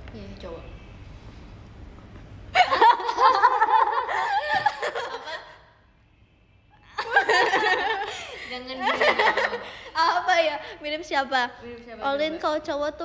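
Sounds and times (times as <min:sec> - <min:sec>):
woman laughing: 0:02.6 - 0:05.6, 0:07.0 - 0:09.9.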